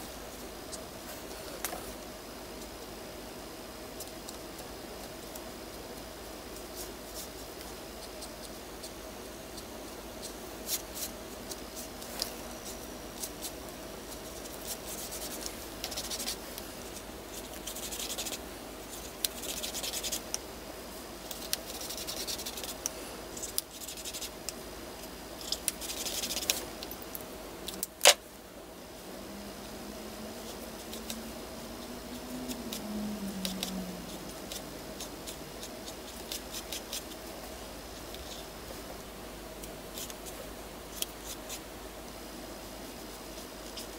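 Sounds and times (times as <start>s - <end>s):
brush markers scratching on paper: 6.6s - 20.3s, 21.4s - 24.4s, 25.8s - 26.6s, 33.5s - 37.3s
low wavering tone: 29.2s - 35.0s.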